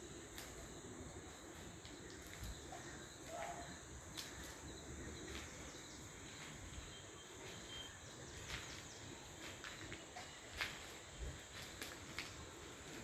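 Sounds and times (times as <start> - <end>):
insect hiss: 0.0 - 13.0.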